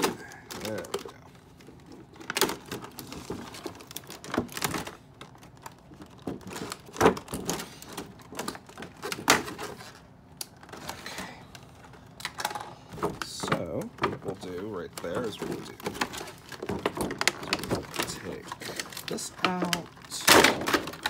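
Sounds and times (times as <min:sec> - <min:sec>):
plastic packaging crackling: 0:00.0 - 0:21.0
plastic snapping: 0:02.2 - 0:11.0.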